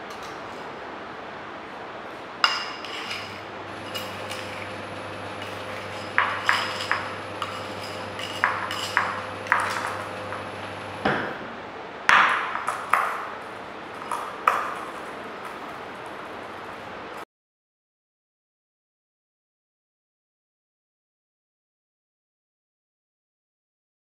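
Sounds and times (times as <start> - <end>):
clinks on porcelain dish: 5.4 - 10.5.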